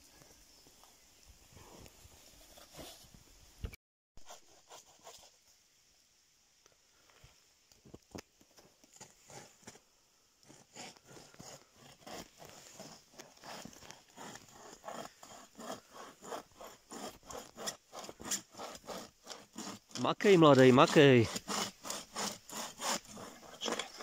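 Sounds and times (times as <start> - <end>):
bow saw cutting wood: 10.4 - 24.0.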